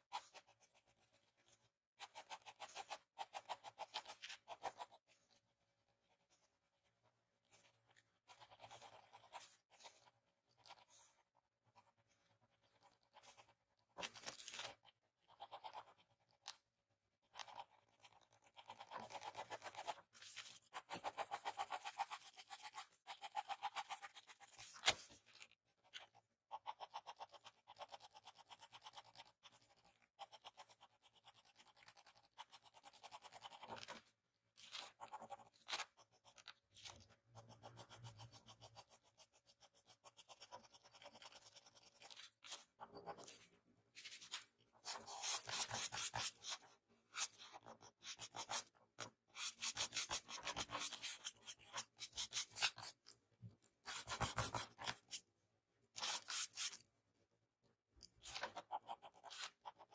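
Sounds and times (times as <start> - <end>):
pencil scratching on paper: 0.0 - 16.6, 17.2 - 53.0, 53.8 - 55.3, 55.9 - 56.9, 58.2 - 59.9.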